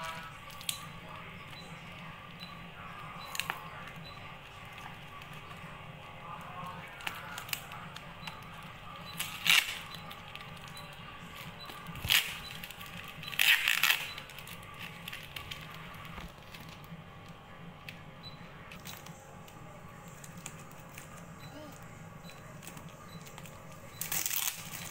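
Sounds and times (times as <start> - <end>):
plastic clicks and crackles: 6.6 - 18.0, 18.7 - 24.9
packing tape ripping: 9.2 - 9.9, 12.0 - 16.0, 22.6 - 24.9.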